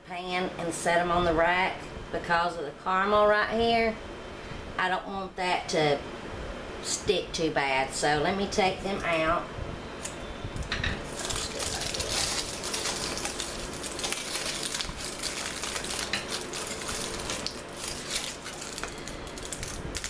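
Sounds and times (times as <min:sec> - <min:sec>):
aluminium foil crinkling: 0:11.1 - 0:20.0.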